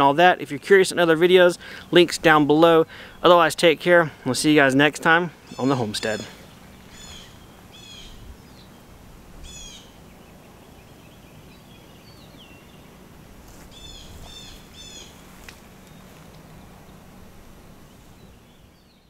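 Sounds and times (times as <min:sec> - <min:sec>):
bird chirping: 0:05.4 - 0:13.1, 0:13.7 - 0:17.0, 0:17.8 - 0:19.0.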